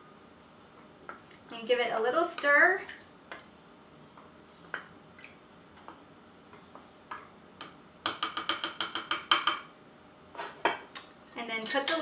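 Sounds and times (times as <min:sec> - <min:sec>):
wooden spoon tapping glass jar: 0:08.1 - 0:09.7.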